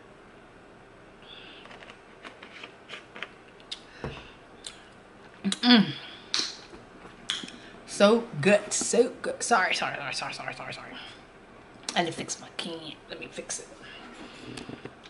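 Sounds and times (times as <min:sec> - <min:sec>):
person humming mm: 0:05.5 - 0:06.2.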